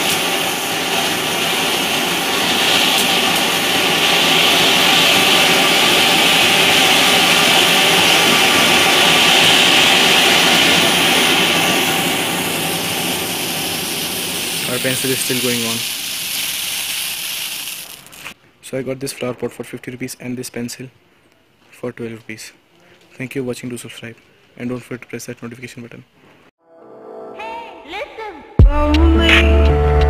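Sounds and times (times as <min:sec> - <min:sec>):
fountain firework hissing: 0:00.0 - 0:18.4.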